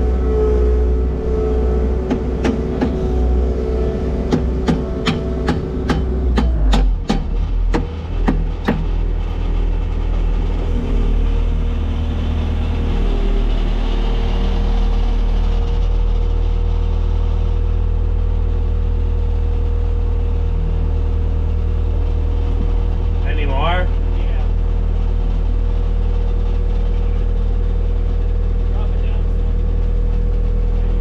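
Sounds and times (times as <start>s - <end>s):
diesel engine running: 0.0s - 31.0s
sharp knocks: 2.1s - 3.3s, 4.3s - 9.3s.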